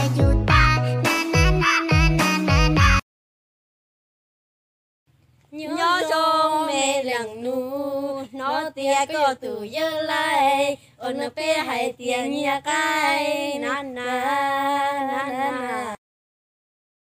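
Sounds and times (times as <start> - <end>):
woman singing: 5.6 - 16.0.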